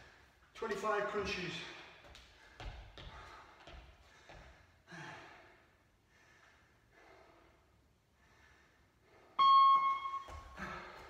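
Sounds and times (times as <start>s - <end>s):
man breathing heavily: 1.6s - 9.4s, 10.5s - 11.0s.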